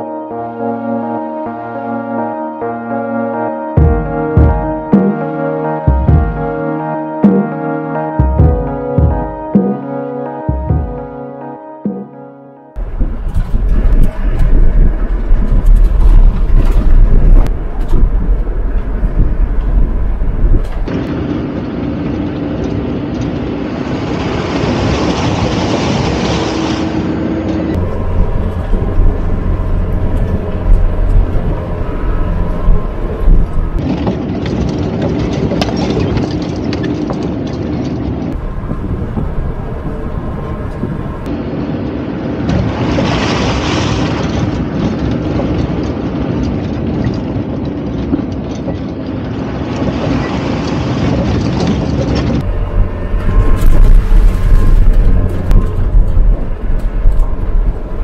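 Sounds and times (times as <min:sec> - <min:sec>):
wind rumbling on microphone: 0:12.8 - 0:58.0
off-road vehicle engine: 0:26.5 - 0:41.4, 0:44.8 - 0:58.0.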